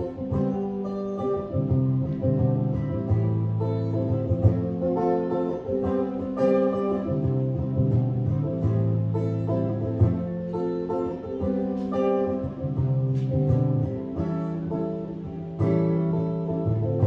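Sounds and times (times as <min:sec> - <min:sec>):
guitar playing chords: 0:00.0 - 0:17.0.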